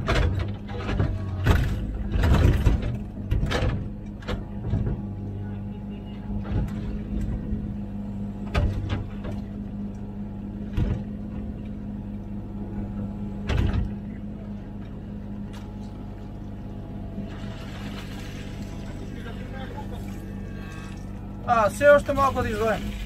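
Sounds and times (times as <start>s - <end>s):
digging arm clunks: 0.0s - 5.2s
excavator diesel engine running: 0.0s - 23.0s.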